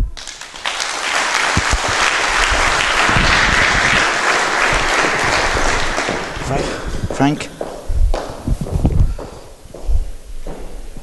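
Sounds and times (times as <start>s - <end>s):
audience applause: 0.2s - 7.5s.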